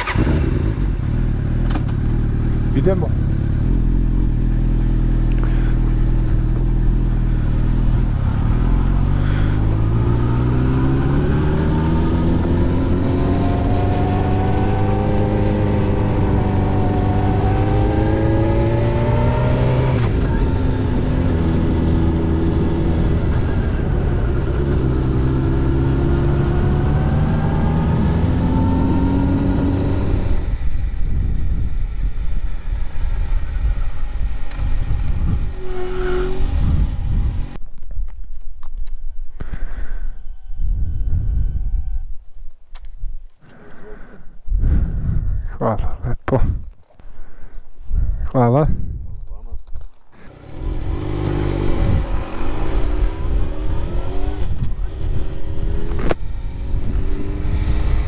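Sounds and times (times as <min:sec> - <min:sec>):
motorcycle engine accelerating: 0:00.0 - 0:37.6, 0:50.2 - 0:58.0.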